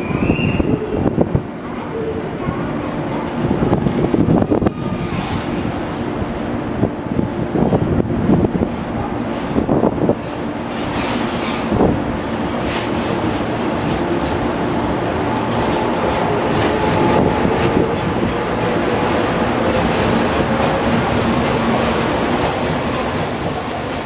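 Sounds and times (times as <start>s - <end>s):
electric train rumbling past: 8.7s - 24.0s.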